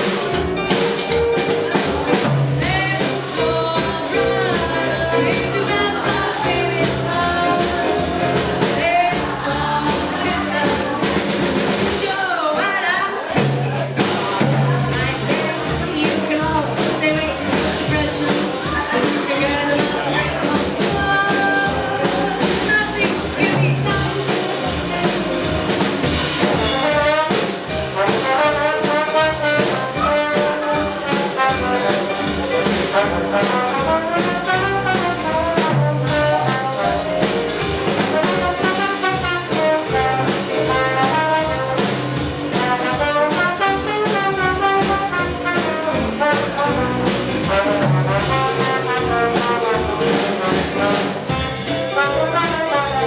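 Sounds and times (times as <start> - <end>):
electric keyboard: 0.0 - 11.8
drum kit swing beat: 0.0 - 53.0
trombone melody: 14.2 - 53.0.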